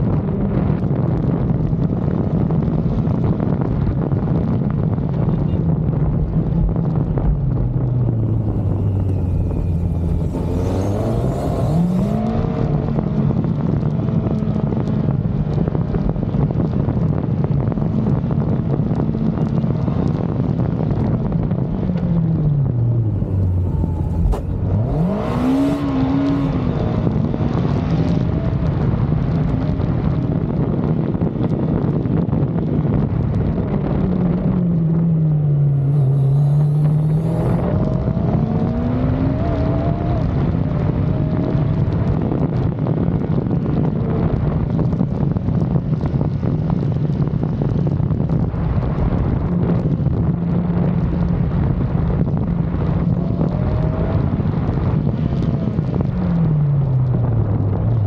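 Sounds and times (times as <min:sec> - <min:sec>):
motorcycle engine revving: 0:06.4 - 0:16.1, 0:19.0 - 0:30.3, 0:33.5 - 0:46.9.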